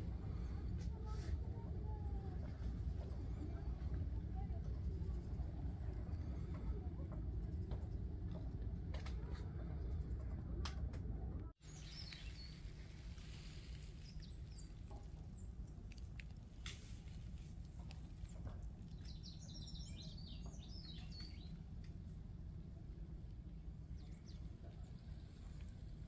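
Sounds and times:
steady low rumble: 0.0s - 26.0s
small birds chirping: 11.6s - 22.0s, 22.6s - 26.0s.

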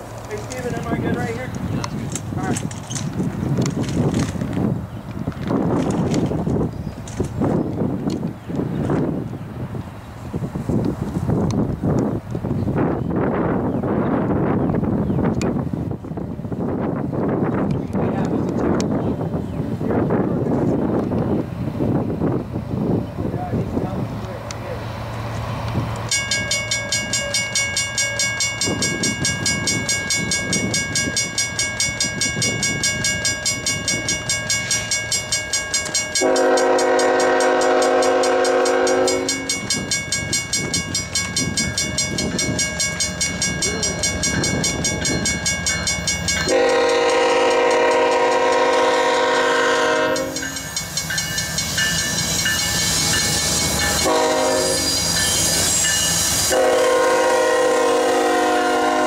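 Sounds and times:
passing train rumble: 0.0s - 59.0s
crossing bell ringing: 26.1s - 59.0s
locomotive air horn blasts: 36.2s - 39.6s, 46.5s - 50.6s, 53.9s - 55.1s, 56.3s - 59.0s.

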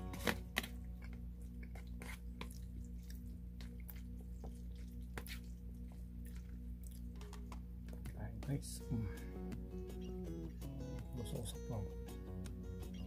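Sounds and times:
chewing and mouth smacks: 0.5s - 8.0s.

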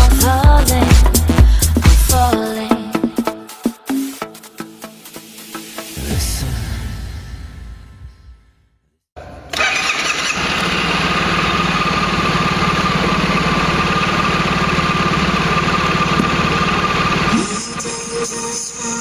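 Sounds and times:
scooter engine starting and idling: 9.2s - 19.0s.

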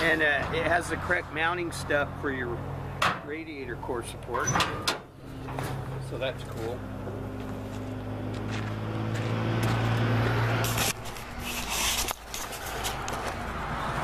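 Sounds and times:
low engine hum: 0.4s - 11.4s.

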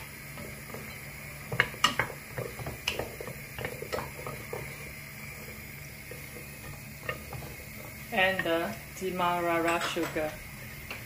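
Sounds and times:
wooden spatula scraping a pot: 0.3s - 8.9s.

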